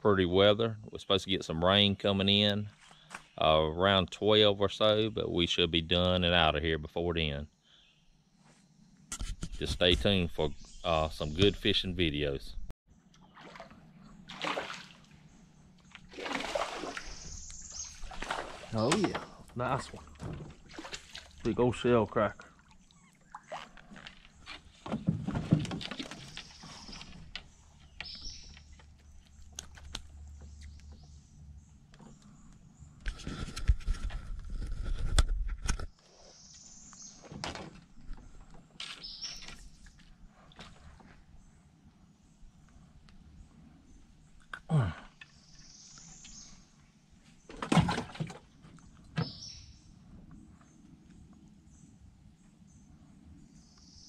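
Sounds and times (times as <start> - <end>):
knocks and clicks against hull: 23.5 - 31.1, 47.5 - 49.4.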